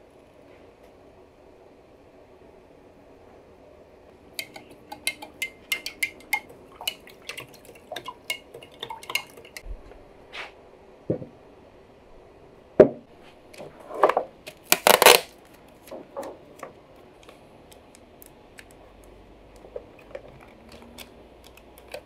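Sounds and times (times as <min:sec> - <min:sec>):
glass clinks and ticks: 0:04.4 - 0:07.0.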